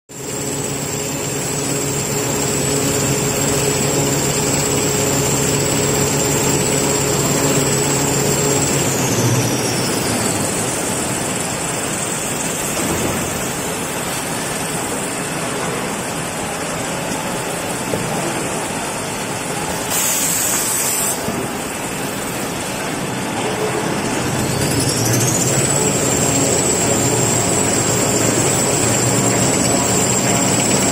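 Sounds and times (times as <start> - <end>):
motors and rollers din: 0.1 - 19.9, 21.1 - 30.9
high machine whine: 0.1 - 30.9
short sharp hiss: 19.9 - 21.2.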